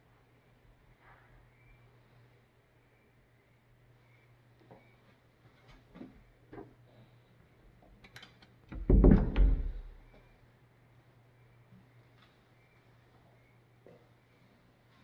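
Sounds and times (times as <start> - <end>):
door bumping open: 8.7 - 10.0.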